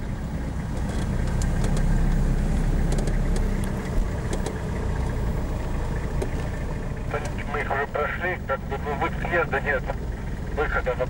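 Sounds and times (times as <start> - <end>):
car engine and tyres rumbling: 0.0 - 11.0
rattles and clicks: 0.6 - 2.0, 2.8 - 5.2, 6.0 - 7.5.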